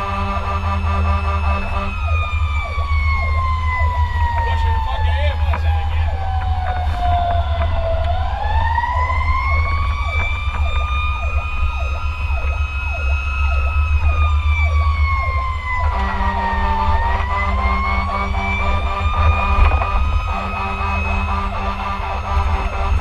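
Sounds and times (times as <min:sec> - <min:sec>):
air horn sounding: 0:00.0 - 0:02.4, 0:15.7 - 0:23.0
diesel engine rumbling: 0:00.0 - 0:23.0
siren sweeping fast: 0:00.0 - 0:23.0
siren wailing slowly: 0:00.0 - 0:23.0.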